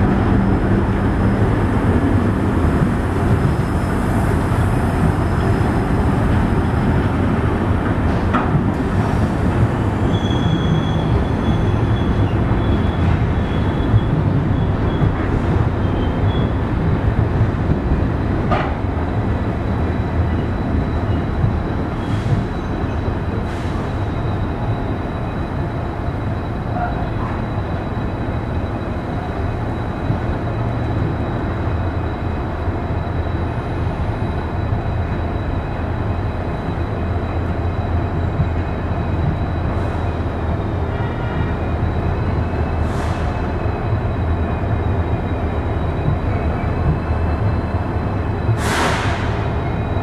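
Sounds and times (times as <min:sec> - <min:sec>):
train wheels rumbling on rails: 0:00.0 - 0:50.0.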